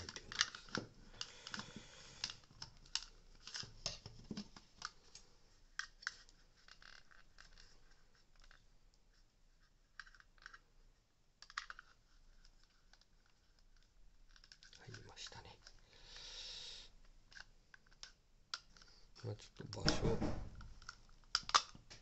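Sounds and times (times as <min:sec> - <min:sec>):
hard plastic clicking and scraping: 0:00.0 - 0:07.8.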